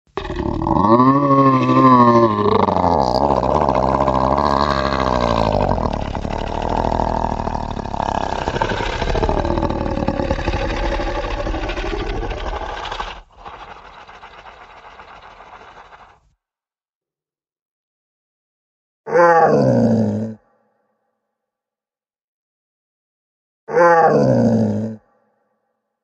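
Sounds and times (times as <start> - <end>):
deep rumbling monster growl: 0.1 - 16.2.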